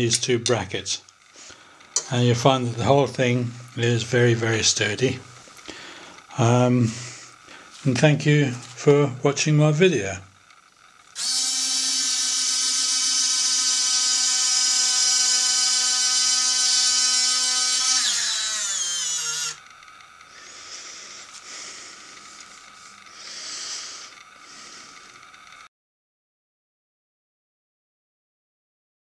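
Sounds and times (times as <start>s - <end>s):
faint mechanical noise: 0.0s - 25.7s
electric motor whining: 10.3s - 25.7s.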